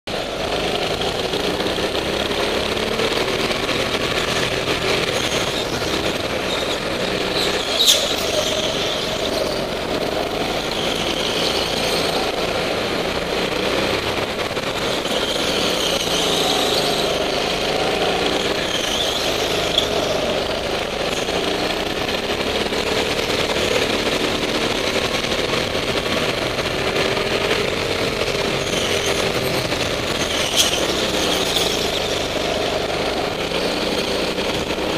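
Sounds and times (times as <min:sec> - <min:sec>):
go-kart engine running hard: 0:00.0 - 0:34.9
tyres squealing on concrete: 0:03.7 - 0:12.7, 0:14.6 - 0:25.0, 0:27.4 - 0:34.9.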